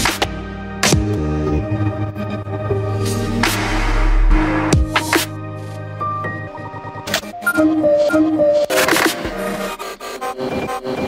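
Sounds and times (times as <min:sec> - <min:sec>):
instrumental music held notes: 0:04.7 - 0:09.3.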